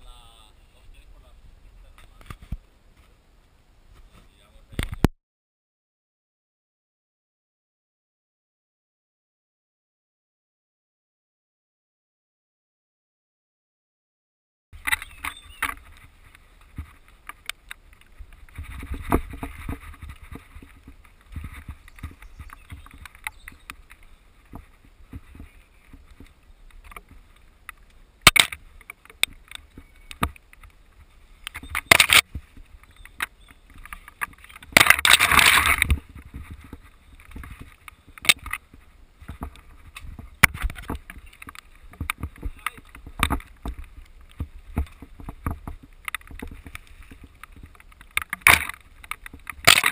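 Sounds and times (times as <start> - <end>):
wind rumble on microphone: 0.0 - 5.1, 14.8 - 27.9, 28.6 - 49.9
bike knocking and rattling: 14.8 - 49.9.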